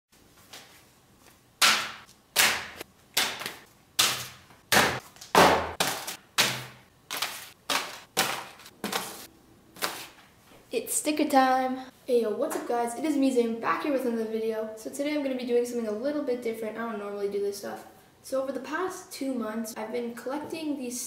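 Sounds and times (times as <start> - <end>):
envelopes slapping onto tabletop: 1.6 - 10.3
papery rustle: 7.1 - 10.2.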